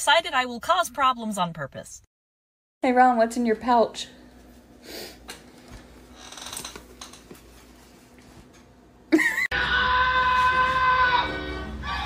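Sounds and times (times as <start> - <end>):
music: 9.6 - 12.0.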